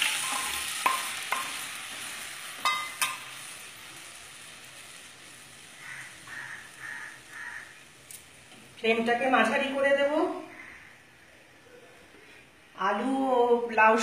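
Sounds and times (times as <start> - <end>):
spice paste sizzling in hot oil: 0.0 - 10.7.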